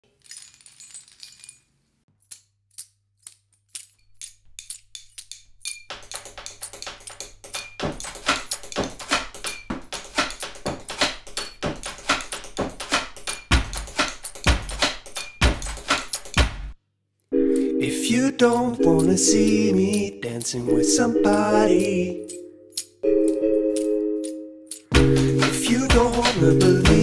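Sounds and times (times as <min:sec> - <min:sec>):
keys jingling: 0:00.0 - 0:16.6, 0:21.3 - 0:26.8
percussion on household objects: 0:02.2 - 0:16.8, 0:18.4 - 0:20.7, 0:21.3 - 0:27.0
heavy low beat: 0:25.0 - 0:27.0.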